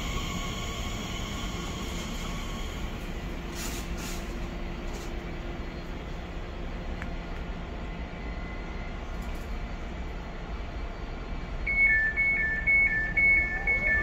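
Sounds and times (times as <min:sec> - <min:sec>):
train rumbling: 0:00.0 - 0:14.0.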